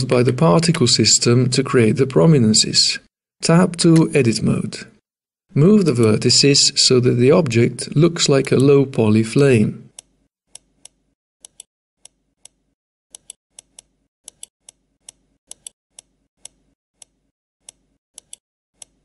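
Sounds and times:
computer mouse clicking: 9.9 - 19.0.

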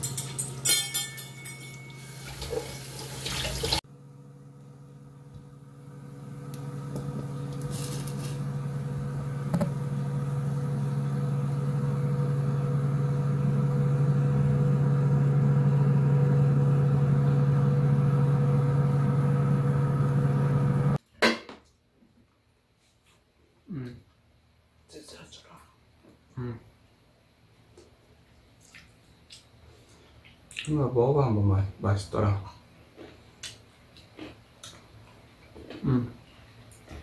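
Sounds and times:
electric motor humming: 4.1 - 21.0.

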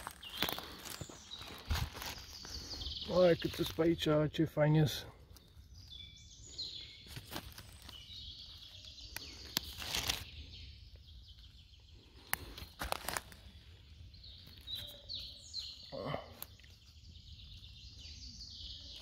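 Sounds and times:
rustling in dry leaves: 0.0 - 4.1, 6.6 - 10.6, 12.0 - 15.5
small birds chirping: 0.0 - 19.0.

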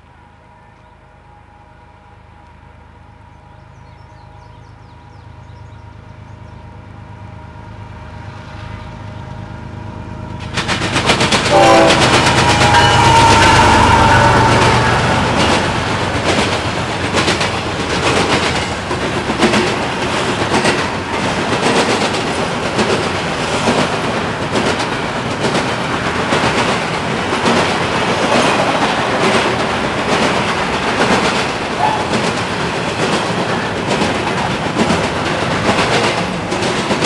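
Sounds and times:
diesel locomotive: 0.0 - 37.0
freight cars rumbling: 3.0 - 37.0
train wheels clacking over rail joints: 10.3 - 37.0.

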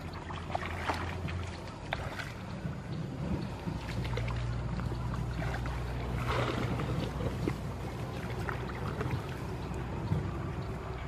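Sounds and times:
steady low hum: 0.0 - 11.0
water splashing: 0.0 - 11.0.

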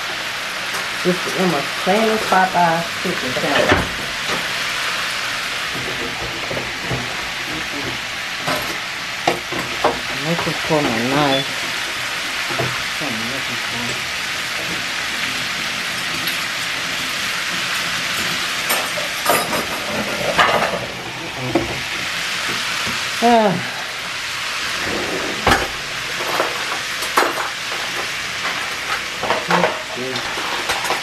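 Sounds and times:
chicken sizzling in a pan: 0.0 - 24.8, 25.4 - 31.0
utensils and dishes clicking: 17.5 - 20.9.

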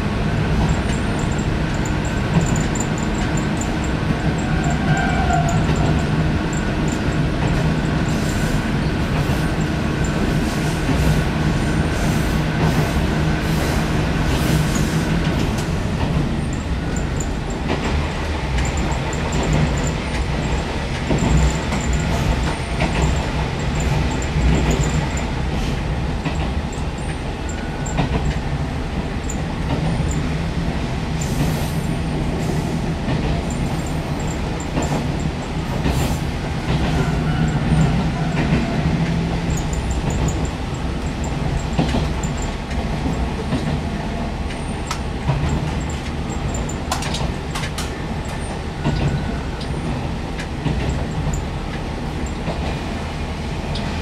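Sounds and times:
railcar engine rumble: 0.0 - 54.0
wheels clicking over rail joints: 14.7 - 30.3, 33.1 - 52.8.

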